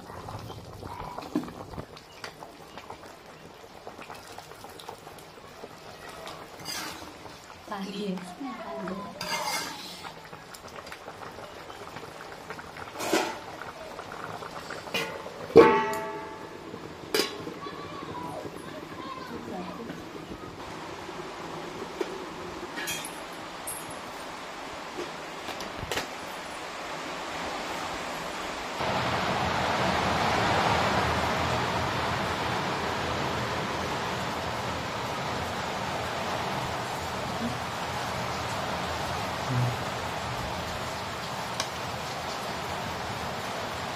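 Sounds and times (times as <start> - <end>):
curry bubbling and crackling: 0.0 - 26.7, 33.3 - 43.9
metal pots clinking: 6.3 - 8.0, 9.1 - 10.2, 12.9 - 13.6, 14.6 - 17.6, 22.7 - 24.2
metal ladle scraping pot: 6.6 - 7.2, 9.2 - 10.1, 13.0 - 13.4.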